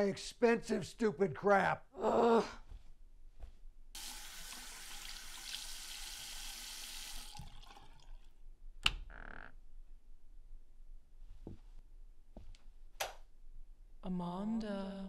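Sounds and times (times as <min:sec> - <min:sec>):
water splashing into sink basin: 0:04.0 - 0:08.3.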